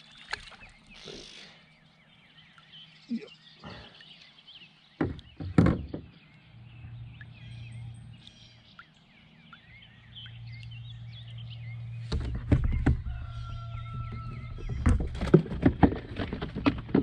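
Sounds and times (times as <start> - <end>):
birds chirping: 0.0 - 17.0
knocks on kayak: 5.0 - 6.1, 12.1 - 13.2.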